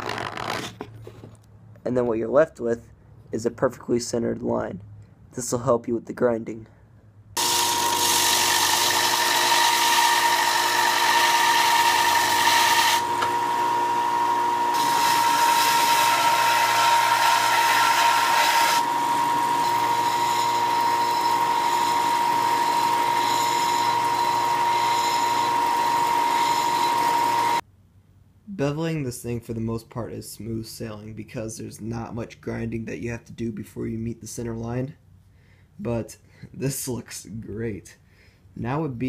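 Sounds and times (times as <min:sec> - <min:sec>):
belt sander motor whine: 0:07.4 - 0:27.6
steel grinding on sanding belt: 0:14.7 - 0:27.6.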